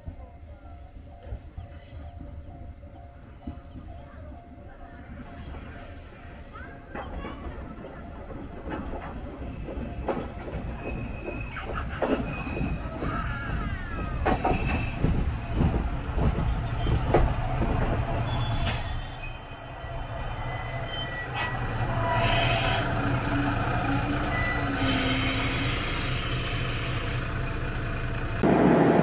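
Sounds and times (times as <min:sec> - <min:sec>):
diesel railcar engine rumble: 0:00.0 - 0:29.0
wheel and brake squeal: 0:09.5 - 0:27.3.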